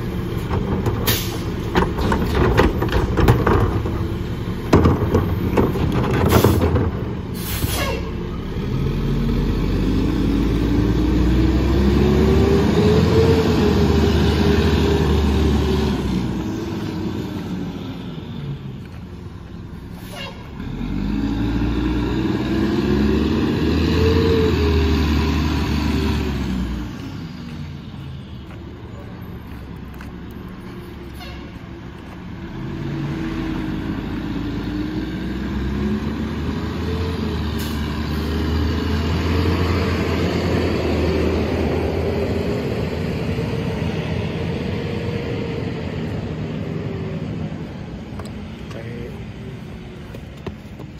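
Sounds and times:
garbage truck diesel engine: 0.0 - 50.9
cart clanking down: 0.4 - 7.3.

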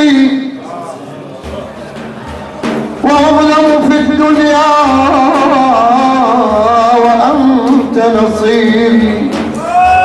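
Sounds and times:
low drum beating: 0.0 - 10.0
man singing religious song: 3.0 - 9.4.

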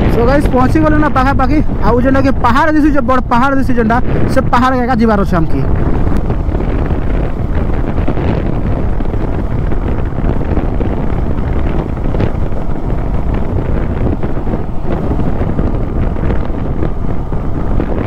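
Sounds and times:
road noise: 0.0 - 18.0
wind rushing over microphone: 0.0 - 18.0
motorcycle engine running: 5.7 - 18.0.

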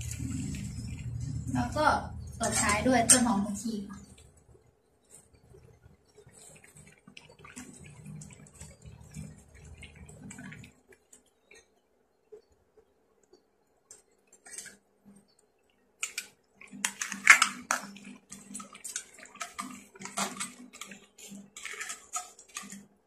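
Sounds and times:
soup sloshing in a metal pan: 0.0 - 11.8, 16.0 - 23.0.

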